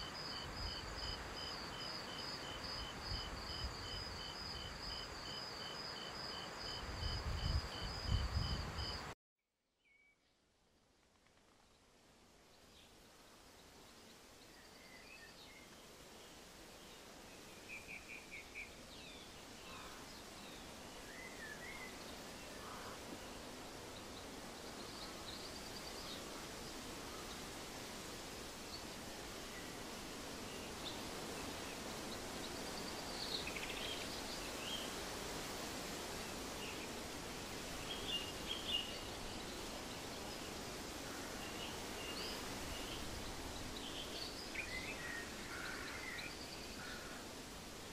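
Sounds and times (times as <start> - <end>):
soft steady hiss: 0.0 - 9.2, 9.8 - 47.9.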